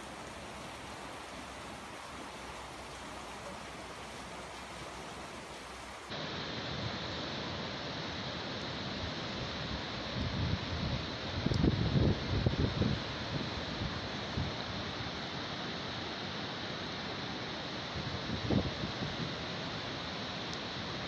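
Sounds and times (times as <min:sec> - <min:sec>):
rushing floodwater: 0:00.0 - 0:21.0
wind buffeting microphone: 0:10.2 - 0:14.6.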